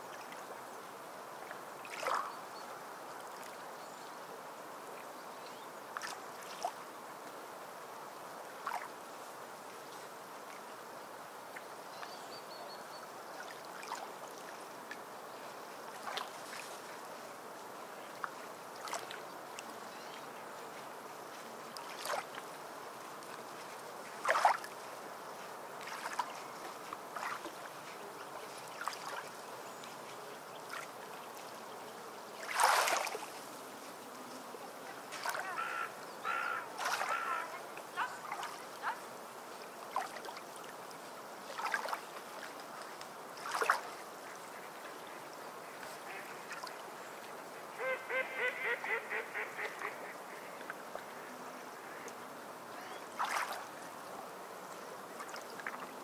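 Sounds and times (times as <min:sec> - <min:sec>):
low steady hiss: 0:00.0 - 0:56.0
bird calls: 0:35.3 - 0:38.4.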